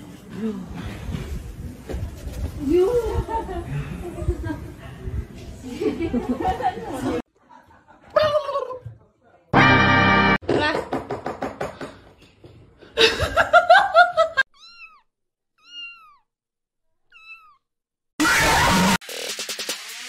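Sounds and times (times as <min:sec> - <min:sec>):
music: 0:09.6 - 0:10.4, 0:19.0 - 0:20.0
kitten mewing: 0:14.5 - 0:16.3, 0:17.1 - 0:17.6.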